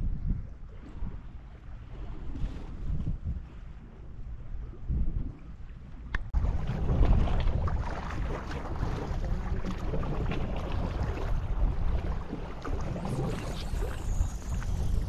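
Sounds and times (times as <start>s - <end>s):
wind rumbling on microphone: 0.0s - 15.0s
sea water sloshing: 0.5s - 15.0s.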